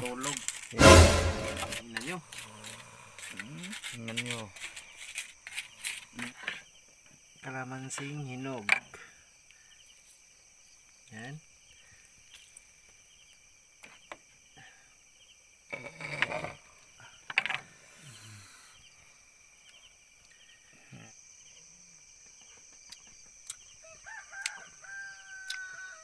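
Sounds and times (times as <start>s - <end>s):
crickets trilling: 0.0s - 0.8s, 1.8s - 26.0s
rooster crowing: 23.8s - 26.0s.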